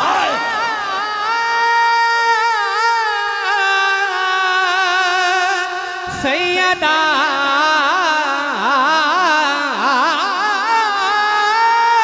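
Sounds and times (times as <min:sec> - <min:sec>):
man singing devotional verse: 0:00.0 - 0:12.0.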